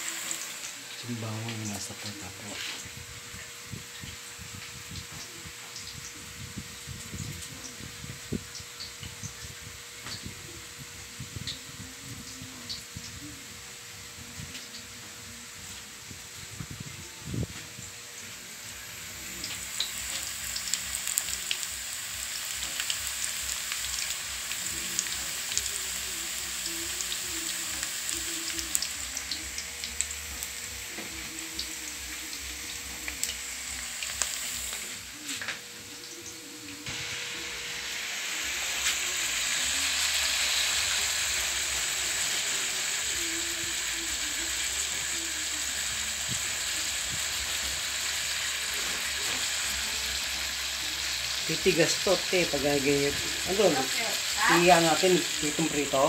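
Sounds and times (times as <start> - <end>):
meat sizzling in oil: 0.0 - 56.0
oil popping and crackling: 19.0 - 37.0, 38.7 - 56.0.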